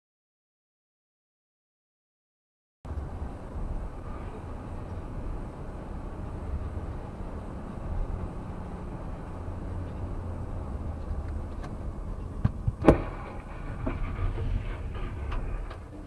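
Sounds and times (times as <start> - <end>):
car road rumble: 2.9 - 16.0
vehicle collision bangs: 11.7 - 16.0
debris clattering: 12.7 - 16.0.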